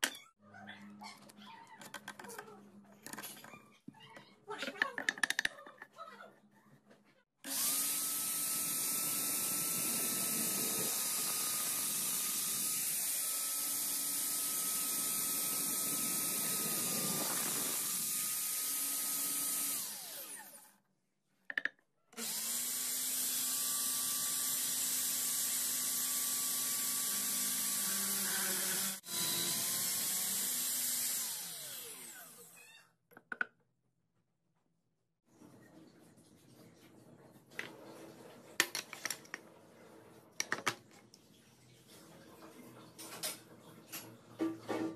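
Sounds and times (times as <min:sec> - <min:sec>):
electric drill boring into wood: 0:07.5 - 0:20.7, 0:22.2 - 0:32.8.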